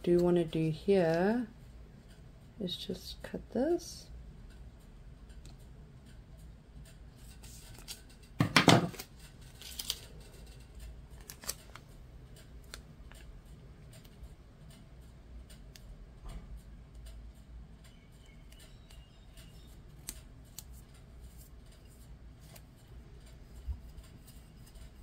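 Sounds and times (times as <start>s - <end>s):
transfer tape rustling: 6.8s - 15.9s, 18.2s - 25.0s.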